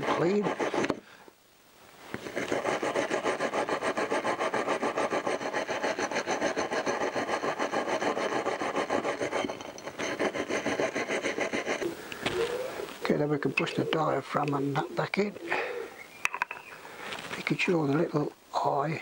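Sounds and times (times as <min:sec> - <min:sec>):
wire brush scrubbing metal: 0:00.0 - 0:00.9, 0:02.2 - 0:13.8.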